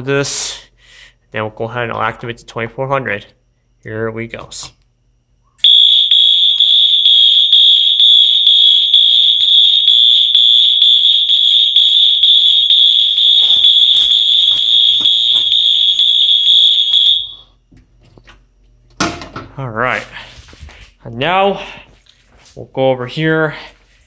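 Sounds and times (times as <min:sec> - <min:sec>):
fire alarm high-pitched tone: 0:05.6 - 0:17.6.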